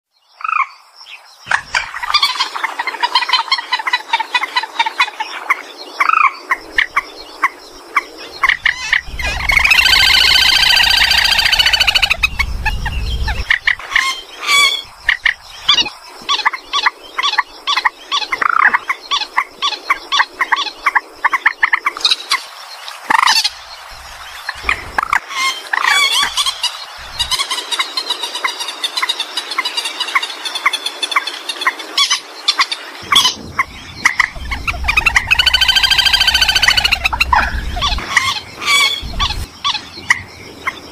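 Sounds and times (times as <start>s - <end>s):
waterbird clucks and squawks: 1.5s - 22.5s, 24.3s - 40.8s
long harsh bird call: 8.4s - 14.9s, 33.0s - 39.9s.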